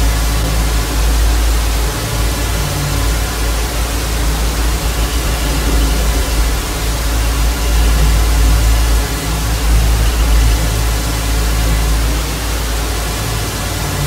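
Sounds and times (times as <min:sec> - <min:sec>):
deep low rumble: 0:00.0 - 0:14.0.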